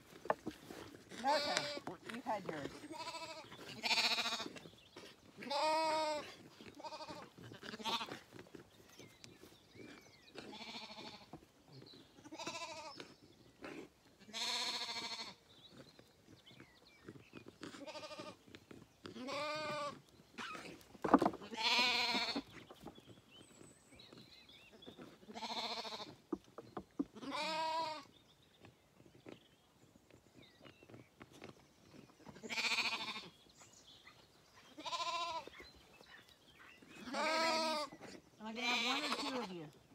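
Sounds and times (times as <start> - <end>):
lambs bleating: 1.2 - 1.9, 2.6 - 4.6, 5.4 - 8.2, 10.4 - 11.3, 12.2 - 13.0, 14.2 - 15.4, 17.6 - 18.4, 19.2 - 20.7, 21.4 - 22.4, 25.3 - 26.1, 27.2 - 28.1, 32.4 - 33.3, 34.8 - 35.5, 37.0 - 37.9, 38.6 - 39.5.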